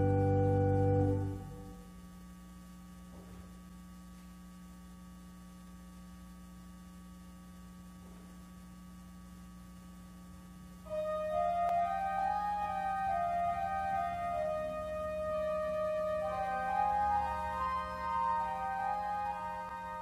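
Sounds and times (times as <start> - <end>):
music: 0.0 - 1.9, 10.9 - 20.0
low electrical mains hum: 0.0 - 20.0.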